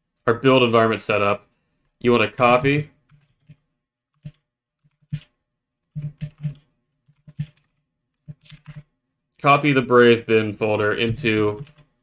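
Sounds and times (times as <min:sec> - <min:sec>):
computer keyboard keystrokes: 0:05.9 - 0:08.9, 0:11.0 - 0:11.9.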